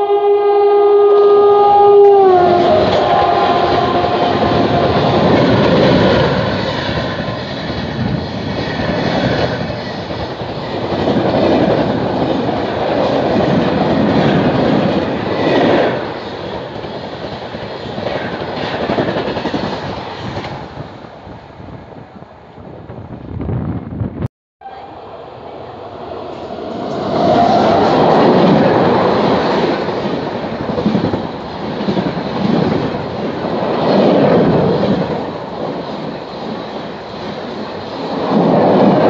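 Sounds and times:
train rushing past: 0.0s - 39.0s.

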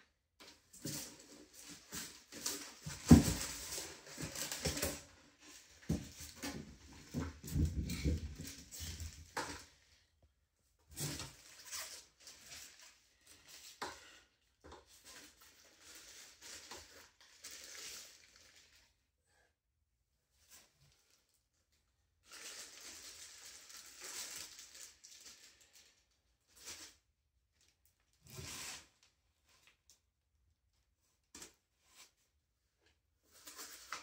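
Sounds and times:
scooter frame knocks and thumps: 2.4s - 5.1s, 5.8s - 9.7s.

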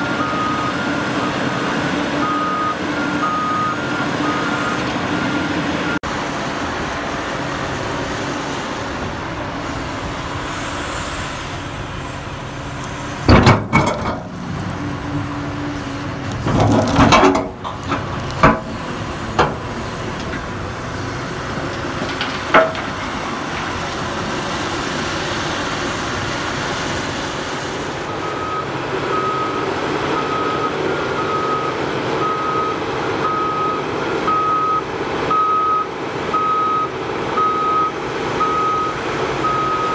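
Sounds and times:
excavator running: 0.0s - 39.9s
backup alarm beeping: 2.2s - 4.8s, 30.2s - 39.9s
bucket knocking and clanking on rock: 16.4s - 18.8s, 22.0s - 23.1s.

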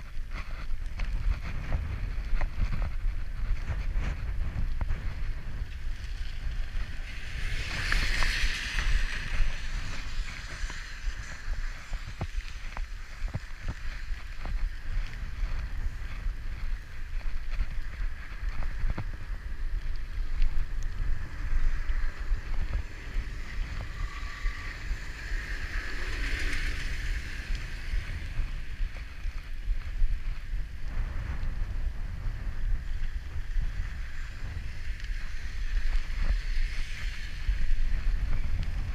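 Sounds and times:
bicycle clicks and rattles: 0.0s - 38.9s
wind buffeting microphone: 0.0s - 38.9s
tyre hiss on wet asphalt: 5.6s - 16.9s, 17.6s - 29.4s.

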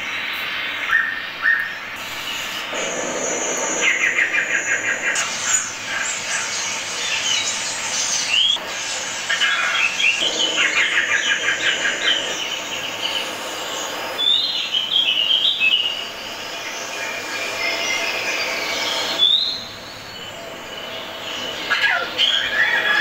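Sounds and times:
high warbling bird call: 0.8s - 7.5s, 8.2s - 23.0s
bird chattering trills: 0.8s - 23.0s
rising bird whistle: 9.9s - 23.0s.

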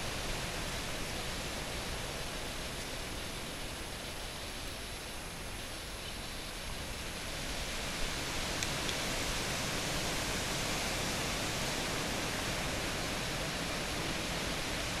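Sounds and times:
faint ticks: 8.6s - 9.0s.

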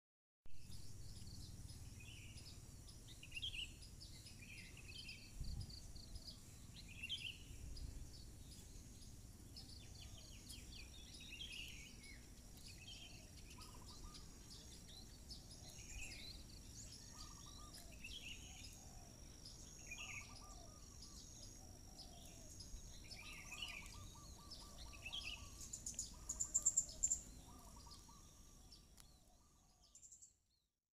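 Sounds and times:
small birds chirping: 0.6s - 30.7s
rapid bird trill: 9.1s - 28.8s.

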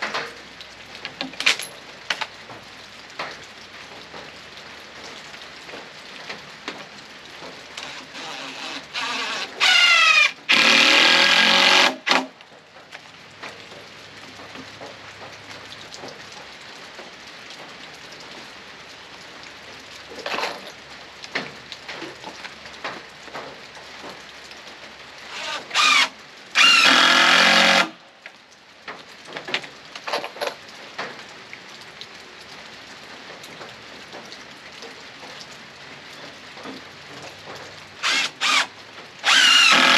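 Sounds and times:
power drill driving screws: 7.8s - 12.3s, 25.3s - 27.9s, 38.0s - 39.9s.

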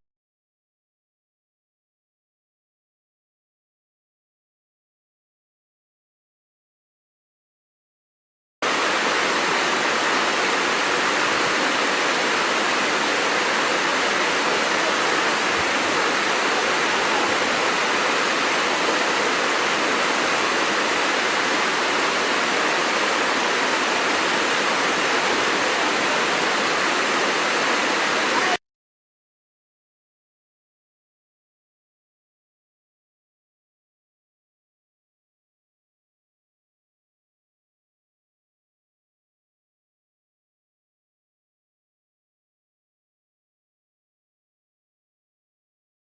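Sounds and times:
waterfall rushing: 8.6s - 28.6s.

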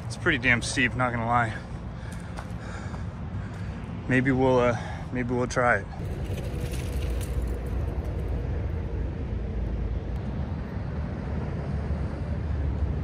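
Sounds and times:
wind rumble: 0.0s - 13.0s
bike tyres rolling: 6.0s - 9.0s.

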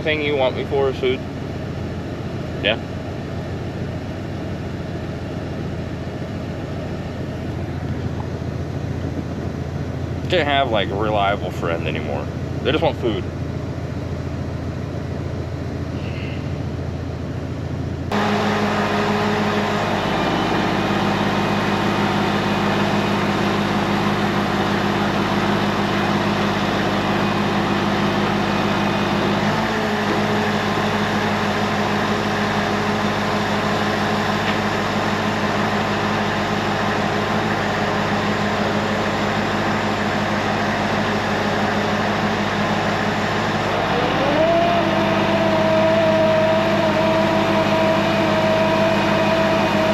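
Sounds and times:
diesel truck engine running: 0.0s - 49.9s
hydraulics unloading: 18.1s - 49.7s.

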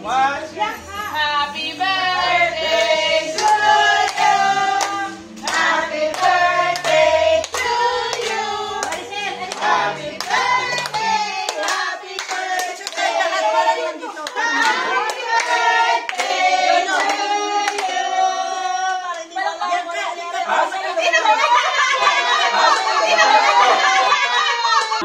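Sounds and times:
group singing: 1.4s - 19.8s, 20.5s - 24.3s
hands clapping: 3.4s - 13.2s.

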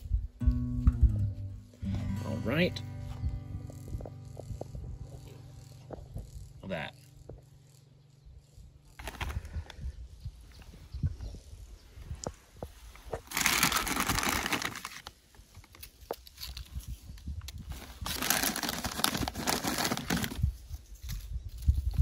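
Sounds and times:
food packaging crinkling: 9.0s - 9.5s, 13.1s - 16.8s, 17.5s - 20.6s.

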